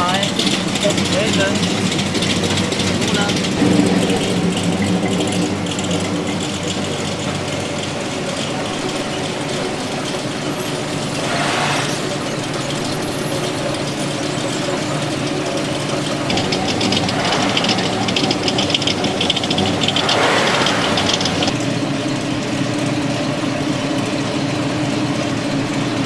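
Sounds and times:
car engines idling: 0.0 - 26.0
fast ticking rattle: 0.0 - 26.0
car passing by: 10.9 - 12.3, 16.3 - 21.6.

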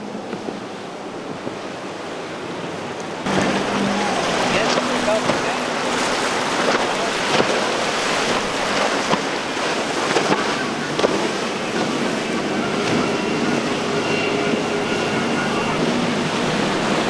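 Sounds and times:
surf and spray rushing: 0.0 - 17.0.

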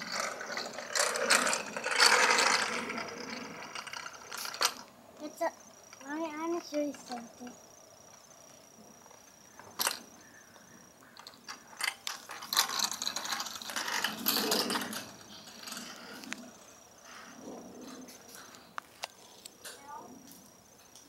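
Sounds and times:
bicycle rattling over asphalt: 0.0 - 4.9, 11.2 - 18.5.

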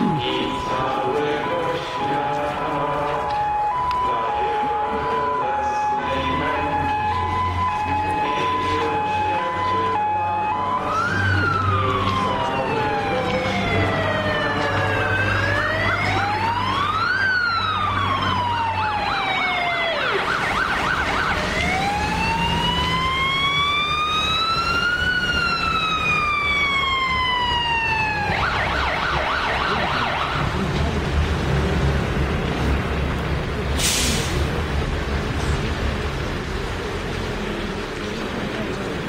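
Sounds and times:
siren yelp: 0.0 - 30.6
siren wailing: 0.0 - 30.7.

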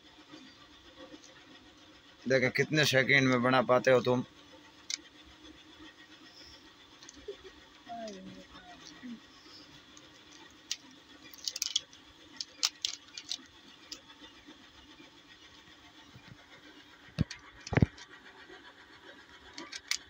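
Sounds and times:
puzzle cube clicking as twisted: 10.6 - 13.5, 19.6 - 20.0.

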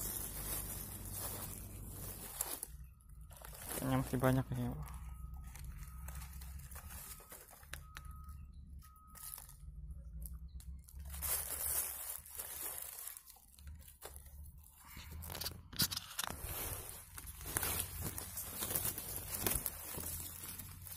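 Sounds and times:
low steady rumble: 0.0 - 15.7
dry leaves and twigs rustling: 0.0 - 20.9
twigs snapping: 15.0 - 20.9.

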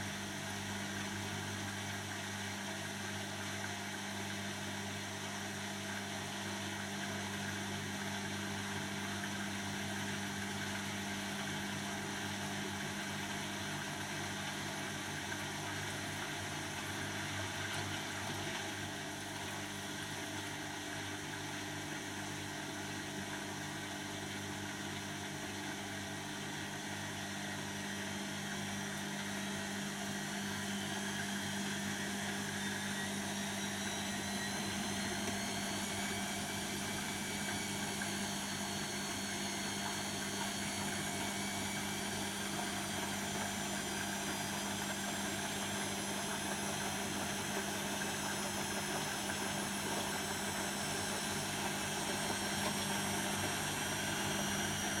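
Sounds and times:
motor whine: 2.8 - 55.0
washing machine drum spinning: 27.0 - 55.0.

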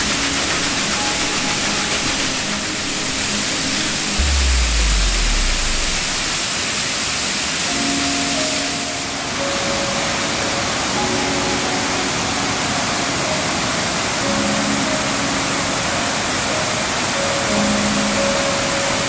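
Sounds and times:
rapids rushing over rocks: 0.0 - 11.4
soft background music: 0.0 - 19.0.

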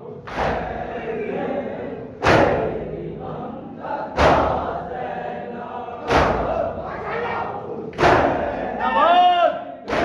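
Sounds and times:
men chanting in unison: 0.0 - 10.0.

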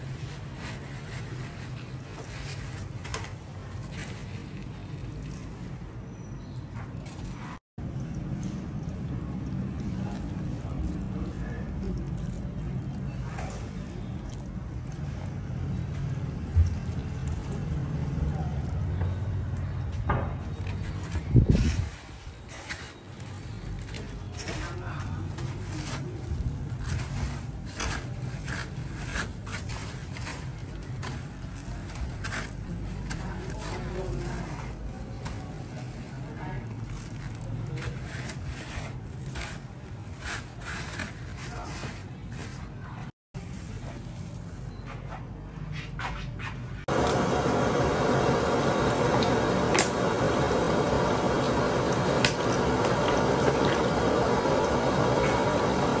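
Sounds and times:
short scrapes and rustles: 0.0 - 5.9, 20.7 - 46.9
hot oil sizzling: 46.9 - 56.0
steady low hum: 46.9 - 56.0
sharp oil pops: 52.1 - 53.7.

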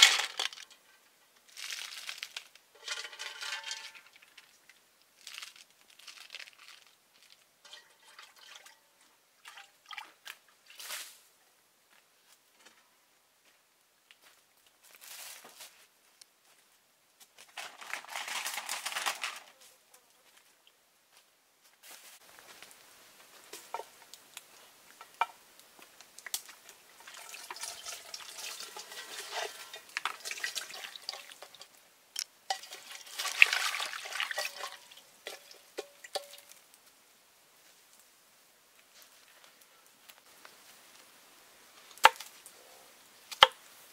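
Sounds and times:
water sloshing and pouring: 7.6 - 10.8, 26.9 - 31.8, 32.5 - 36.6.

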